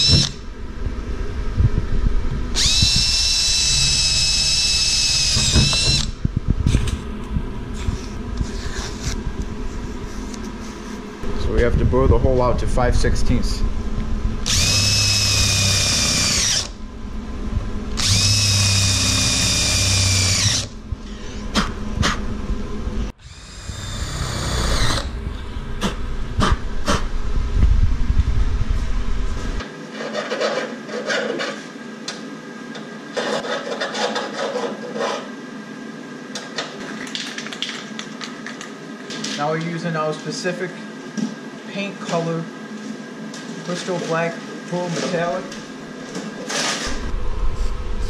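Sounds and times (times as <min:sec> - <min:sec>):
cordless drill whining: 0:00.0 - 0:00.4, 0:02.5 - 0:06.2, 0:14.4 - 0:16.8, 0:18.0 - 0:20.8, 0:23.2 - 0:25.2.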